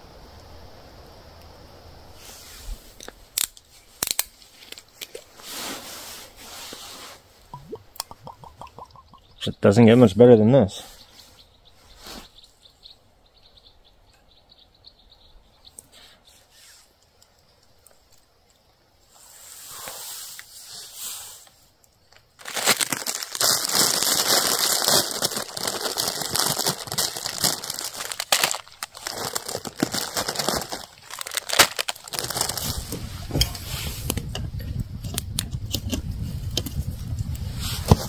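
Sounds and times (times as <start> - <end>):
campfire crackling: 0.0 - 9.4, 16.6 - 34.2.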